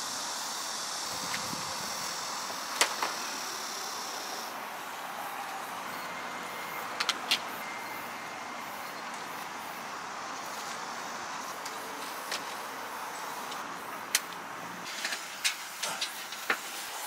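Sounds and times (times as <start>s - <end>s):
road traffic hum: 0.0s - 17.0s.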